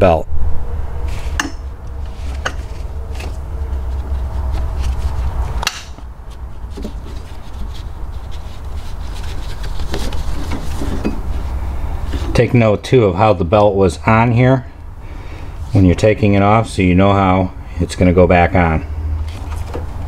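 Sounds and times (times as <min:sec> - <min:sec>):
steady low hum: 0:00.0 - 0:20.0
sharp metal knock: 0:05.6 - 0:06.0.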